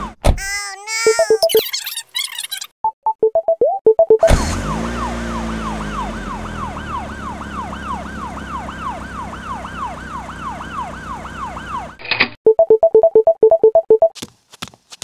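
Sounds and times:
police siren wailing: 0:04.2 - 0:12.0.

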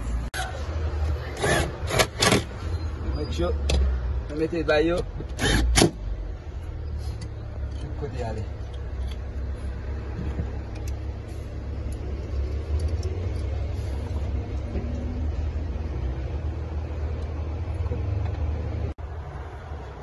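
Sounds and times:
low mechanical rumble: 0:05.1 - 0:20.0.

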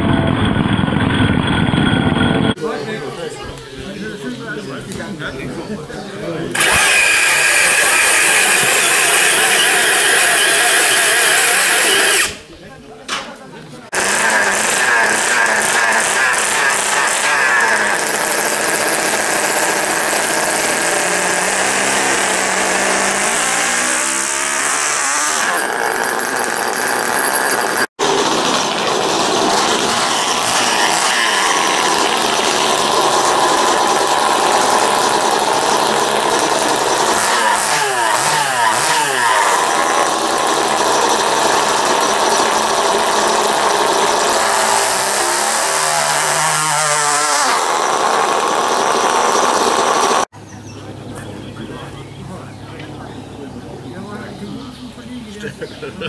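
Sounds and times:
small model engines revving: 0:06.5 - 0:12.5, 0:13.9 - 0:50.3.

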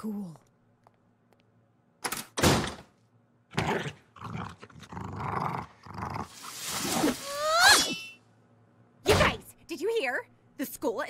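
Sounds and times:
door banging shut: 0:02.4 - 0:02.9.

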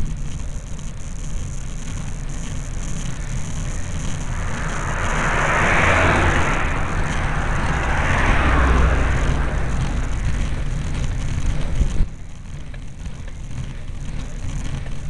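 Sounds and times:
wind rumble on microphone: 0:00.0 - 0:15.0
car passing close by: 0:02.4 - 0:11.8.

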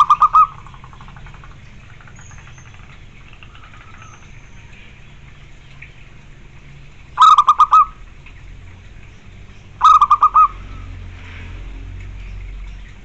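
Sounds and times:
dove cooing: 0:00.0 - 0:04.4, 0:07.1 - 0:08.1, 0:09.8 - 0:11.0.

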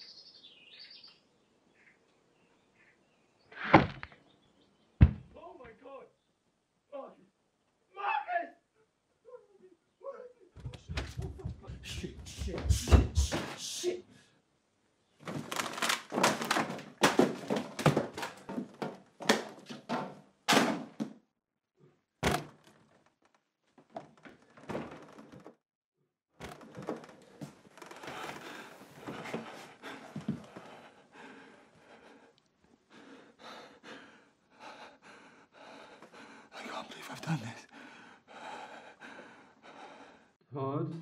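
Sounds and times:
food falling on floor: 0:15.2 - 0:19.5.

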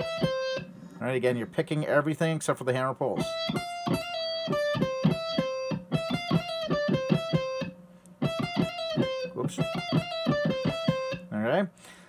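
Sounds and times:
electric guitar lead phrase: 0:00.0 - 0:00.8, 0:03.1 - 0:11.5.

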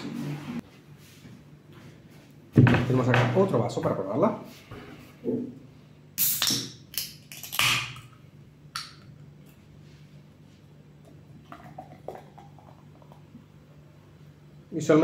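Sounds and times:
soda can cracking open: 0:06.2 - 0:08.1
cola pouring into glass: 0:11.0 - 0:13.6.

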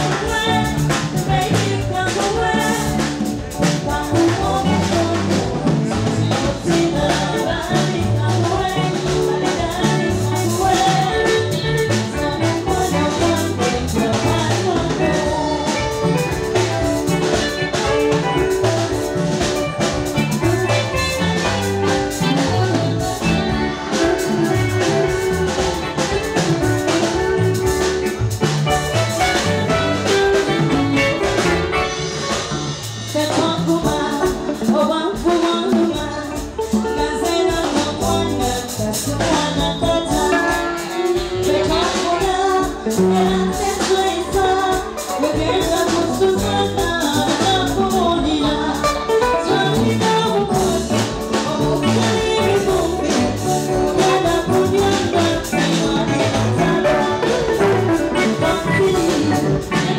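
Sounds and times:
drum kit beat: 0:00.0 - 0:59.9
woman singing into microphone: 0:00.0 - 0:59.9
saxophone playing: 0:06.7 - 0:33.2, 0:39.8 - 0:44.2, 0:48.3 - 0:59.9.

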